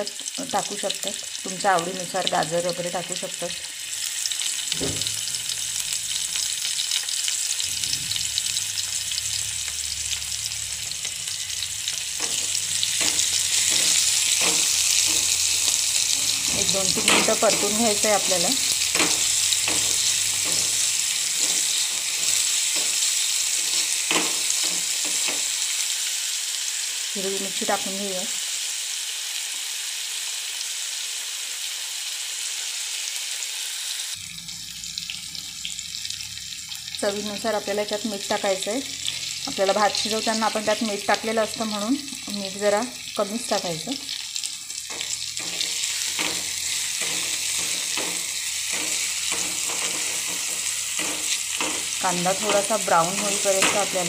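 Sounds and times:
onion and tomato sizzling in oil: 0:00.0 - 0:54.0
spatula scraping a pan: 0:11.9 - 0:25.7, 0:44.8 - 0:54.0.

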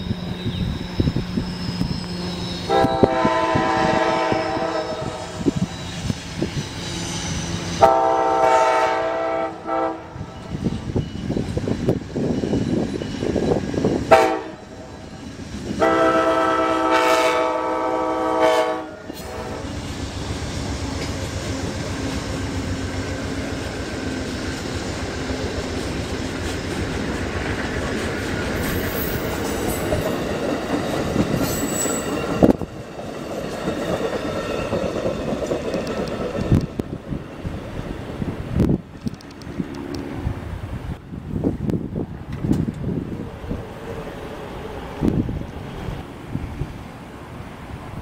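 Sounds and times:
train cars rumbling and clacking: 0:00.0 - 0:48.0
train horn blasts: 0:02.3 - 0:05.6, 0:07.7 - 0:10.6, 0:14.1 - 0:14.9, 0:15.8 - 0:19.8.

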